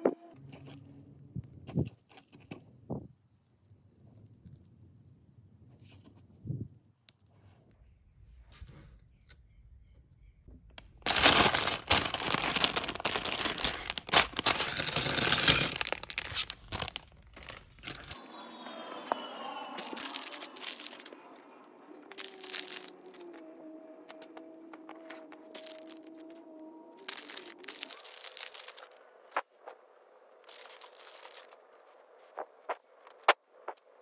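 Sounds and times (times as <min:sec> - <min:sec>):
plastic bag crinkling: 0:11.0 - 0:18.3, 0:19.6 - 0:23.4, 0:24.1 - 0:26.4, 0:27.0 - 0:28.9, 0:30.5 - 0:31.6.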